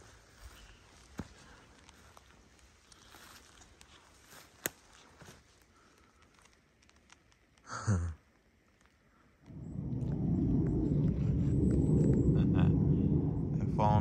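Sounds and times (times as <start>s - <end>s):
footsteps rustling on forest floor: 0.0s - 7.3s
low rumble: 9.4s - 14.0s
sound dropping in pitch: 9.5s - 14.0s.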